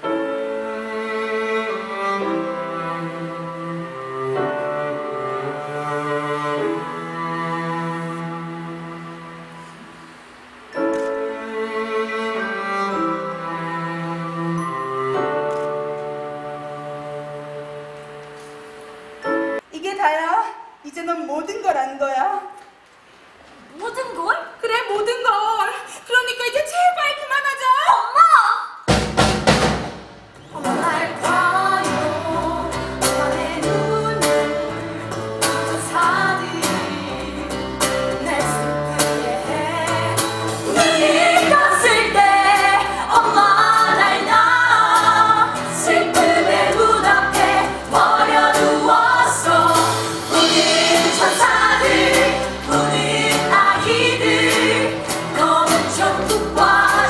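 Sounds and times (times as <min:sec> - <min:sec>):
small live band: 0:28.8 - 0:57.0
women singing together: 0:30.5 - 0:57.0.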